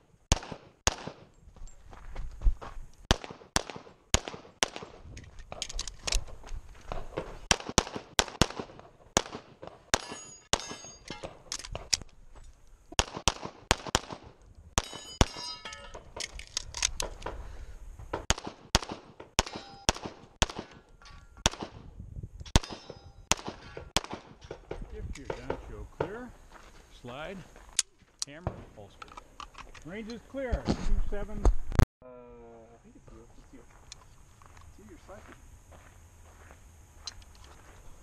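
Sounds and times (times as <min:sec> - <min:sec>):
rapid pistol fire: 0:00.3 - 0:01.3, 0:03.1 - 0:05.0, 0:07.4 - 0:10.6, 0:13.0 - 0:15.4, 0:18.2 - 0:20.8, 0:21.4 - 0:21.8, 0:22.6 - 0:24.4
steel plates clanging: 0:10.0 - 0:11.5, 0:14.8 - 0:16.0.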